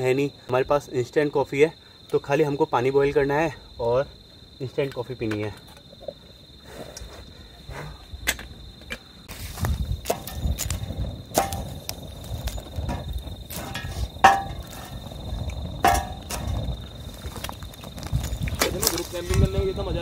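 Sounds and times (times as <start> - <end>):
high insect trill: 0.0 - 20.0
wood fire crackling: 9.3 - 20.0.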